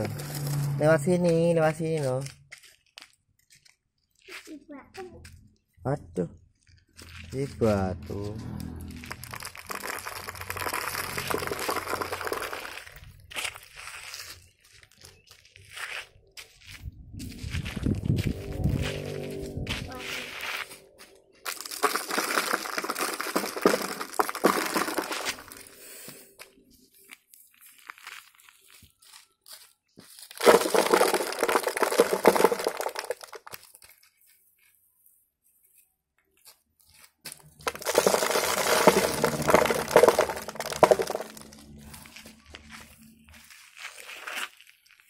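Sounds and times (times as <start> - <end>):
cardboard toy scraping on gravel: 0.0 - 1.6, 7.0 - 16.2, 21.5 - 25.9, 30.0 - 34.3, 36.9 - 45.0.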